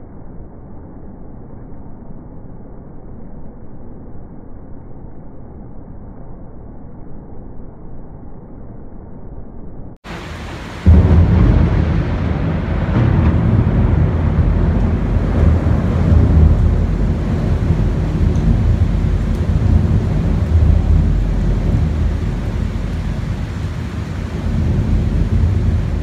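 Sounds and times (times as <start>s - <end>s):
thunder rumbling: 10.0s - 26.0s.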